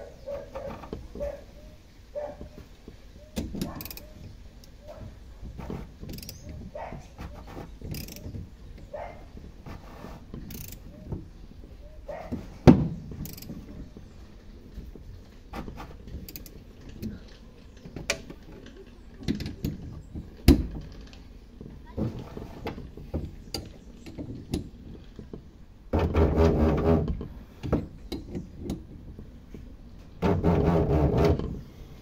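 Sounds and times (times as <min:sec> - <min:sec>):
metal scraping and knocking: 0:00.0 - 0:01.4, 0:02.3 - 0:31.6
socket ratchet clicking: 0:07.9 - 0:08.2, 0:10.5 - 0:10.9, 0:13.2 - 0:13.5.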